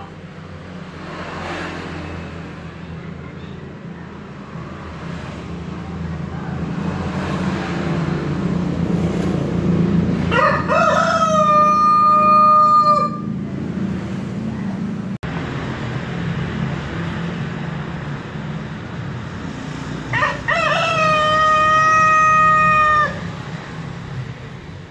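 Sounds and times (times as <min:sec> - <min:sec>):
rooster crowing: 0:10.2 - 0:13.4, 0:20.1 - 0:23.5.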